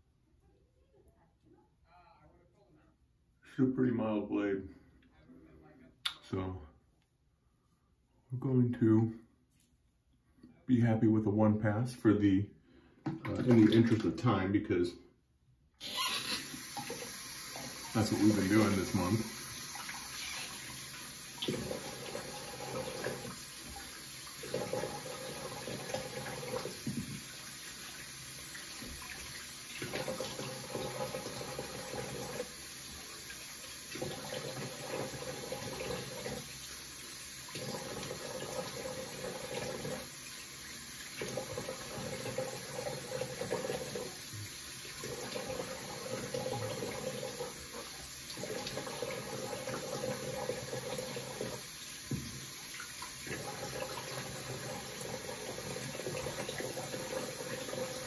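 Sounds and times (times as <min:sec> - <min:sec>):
sink tap running: 0:15.8 - 0:58.0.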